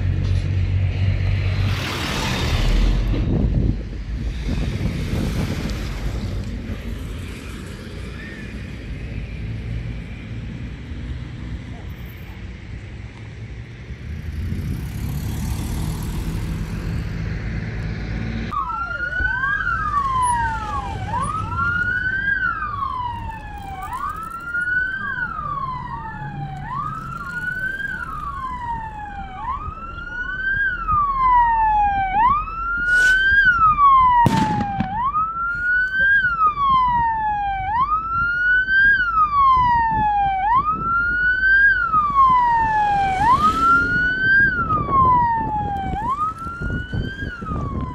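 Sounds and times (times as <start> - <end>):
vehicle siren wailing: 18.5 - 47.9
sharp bangs: 34.2 - 35.4.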